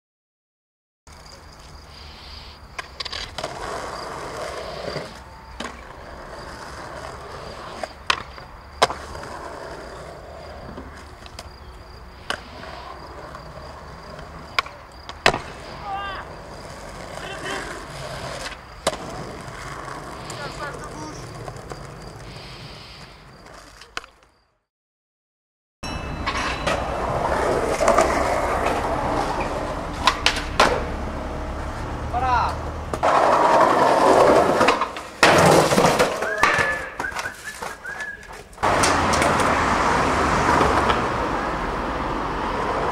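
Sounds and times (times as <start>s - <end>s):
skateboard wheels rolling on concrete: 1.1s - 24.6s, 25.8s - 42.9s
skateboard popping and landing cracks: 2.7s - 22.4s, 23.2s - 24.4s, 26.7s - 30.9s, 32.6s - 39.7s, 40.4s - 41.3s.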